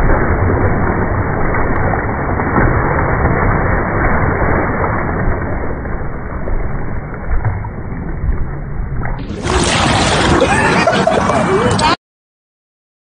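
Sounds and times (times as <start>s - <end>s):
fish thrashing water: 0.0s - 6.2s, 9.2s - 11.3s
loud full sound: 0.0s - 12.0s.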